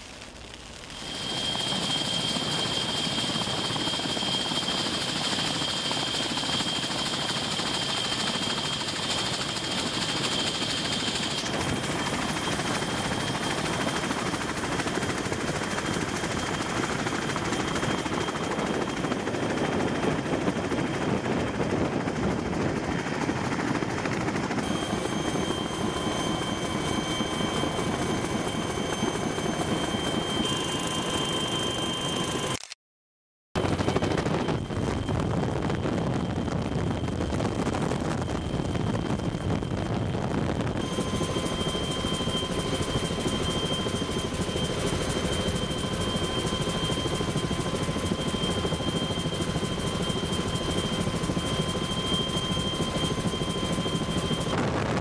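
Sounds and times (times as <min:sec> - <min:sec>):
helicopter rotor and turbine noise: 0:00.0 - 0:32.8, 0:33.6 - 0:55.0.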